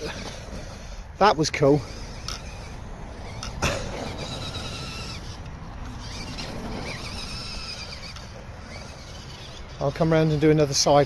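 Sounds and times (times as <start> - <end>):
small electric motor whining: 0.0 - 11.0.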